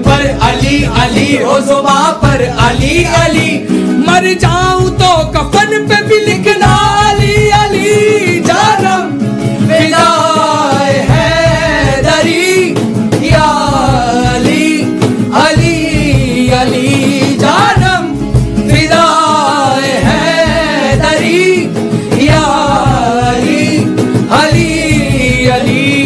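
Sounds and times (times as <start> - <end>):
instrumental backing: 0.0 - 26.0
person singing: 0.0 - 26.0.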